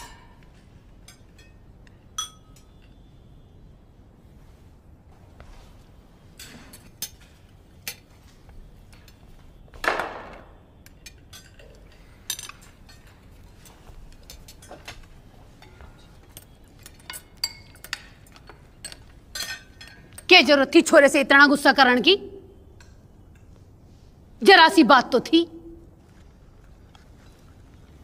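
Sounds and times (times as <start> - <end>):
cutlery clicking on plates: 0.0 - 3.0, 10.8 - 20.3
dishes clattering: 0.0 - 3.0, 10.9 - 20.3.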